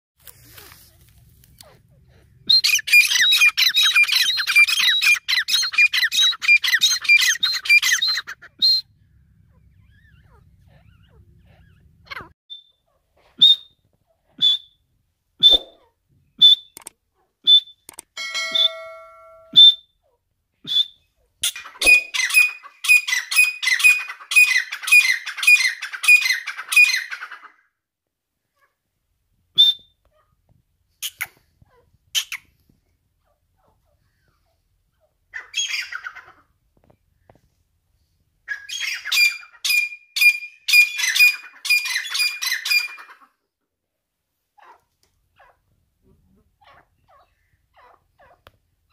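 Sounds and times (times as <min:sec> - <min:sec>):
single short partridge calls: 0:15.4 - 0:16.9, 0:20.7 - 0:27.0.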